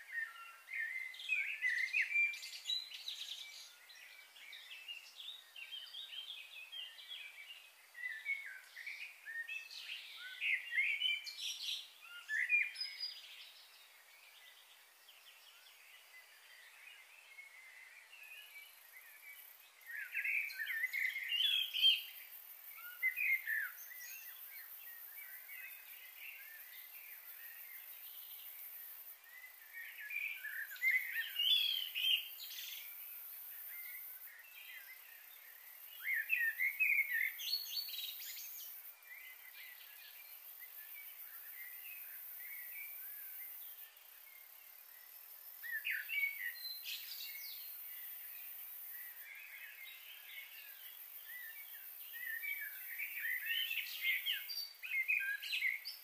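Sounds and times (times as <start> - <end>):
steady high hiss: 0.0 - 56.0
birds chirping: 18.3 - 56.0.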